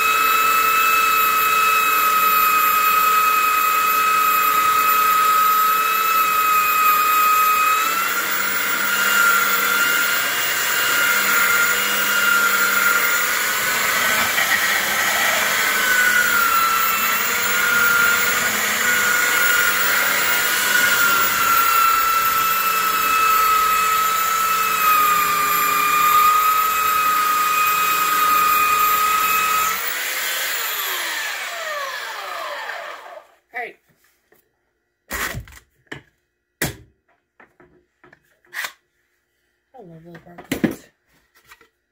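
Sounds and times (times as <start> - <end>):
belt sander whining: 0.0 - 33.4.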